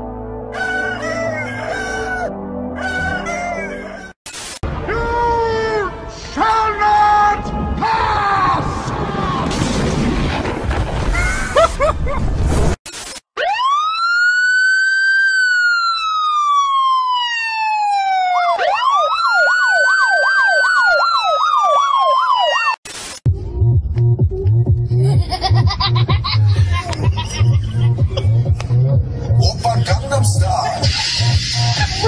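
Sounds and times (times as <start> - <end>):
police siren wailing and yelping: 0.6 - 4.2, 13.4 - 22.8.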